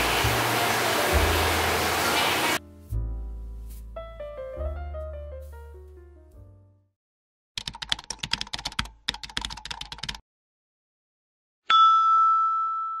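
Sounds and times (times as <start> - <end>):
piano music: 0.0 - 6.9
keyboard typing clicks: 7.6 - 10.2
bright chime ding: 11.7 - 13.0.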